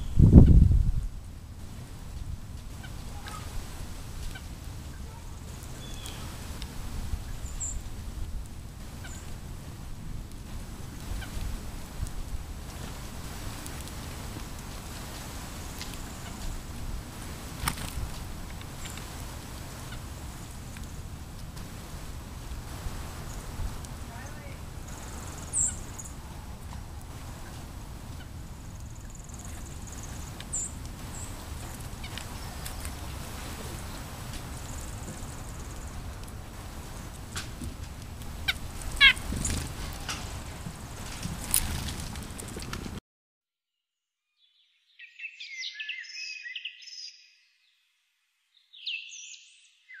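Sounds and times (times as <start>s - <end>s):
low outdoor rumble: 0.0s - 43.0s
small birds chipping: 2.2s - 9.4s, 17.3s - 21.6s, 23.1s - 41.9s
songbird chirping: 2.7s - 7.9s, 23.0s - 37.2s, 44.3s - 50.0s.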